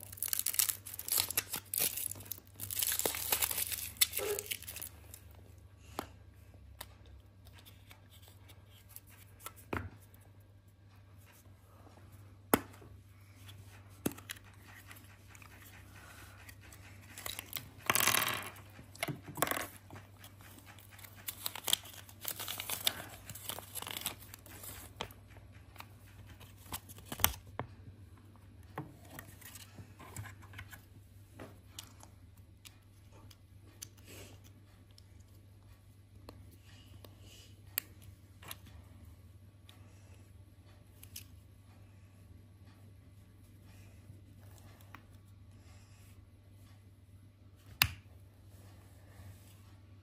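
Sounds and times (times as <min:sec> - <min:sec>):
paper leaflet rustling: 0:19.9 - 0:25.2.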